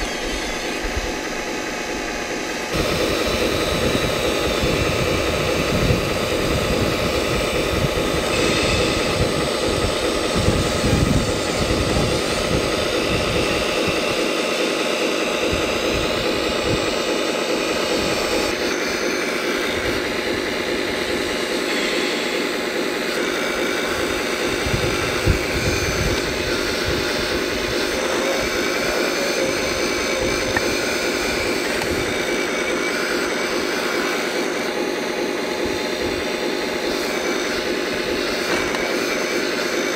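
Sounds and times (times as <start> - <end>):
hydraulic pump whining: 0.0 - 39.9
wind rumbling on microphone: 2.8 - 14.1, 24.0 - 28.5.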